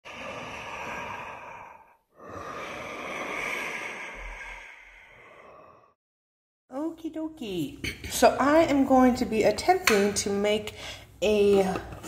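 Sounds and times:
breathy whooshes: 0.0 - 6.0.

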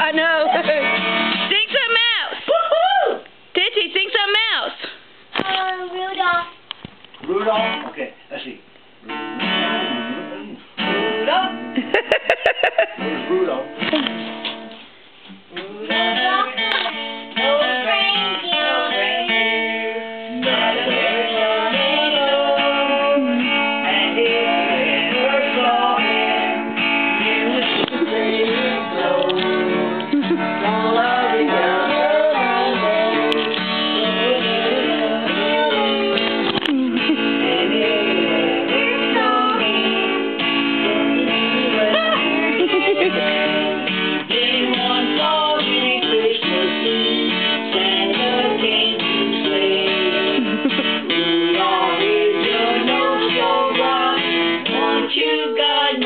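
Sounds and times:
acoustic guitar strumming: 0.0 - 2.4, 7.3 - 8.0, 8.9 - 56.0
girl singing: 5.4 - 6.6, 16.0 - 19.6, 30.2 - 49.7, 51.3 - 56.0.

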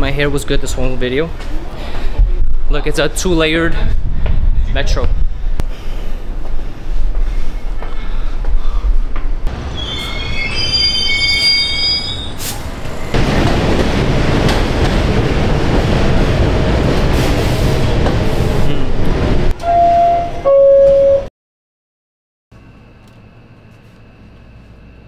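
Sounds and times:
train rumbling past: 0.0 - 20.4
train wheels squealing: 9.7 - 13.1
loud held tones: 19.6 - 21.3.

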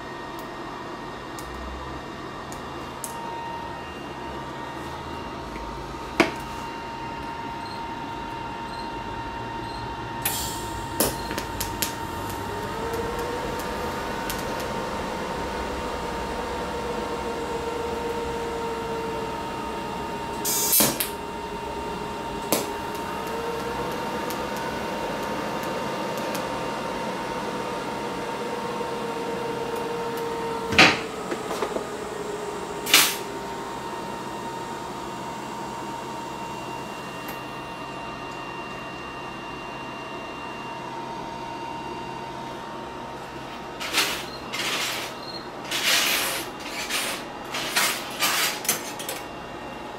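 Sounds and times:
steady high whine: 0.0 - 49.9
steady welding arc tone: 2.4 - 37.9, 42.9 - 49.6
welding arc crackles: 10.2 - 34.8.

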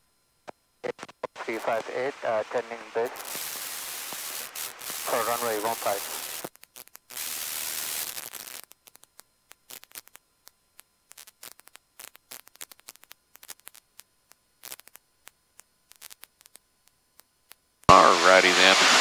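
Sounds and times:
intercom static hiss: 0.4 - 8.8, 17.9 - 19.0
crackling clicks: 0.4 - 17.9.

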